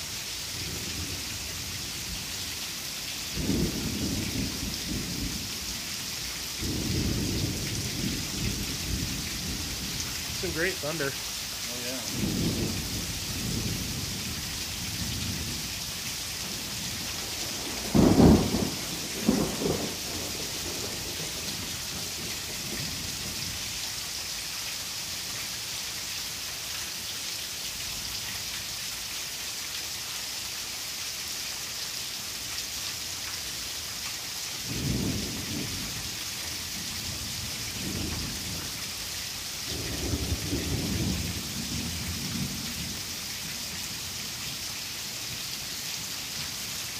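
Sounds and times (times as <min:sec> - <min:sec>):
heavy rain pouring: 0:00.0 - 0:46.9
thunder rumbling: 0:03.4 - 0:05.5, 0:06.6 - 0:10.8, 0:12.0 - 0:15.6, 0:16.5 - 0:23.4, 0:34.7 - 0:36.0, 0:37.0 - 0:38.7, 0:39.7 - 0:43.0.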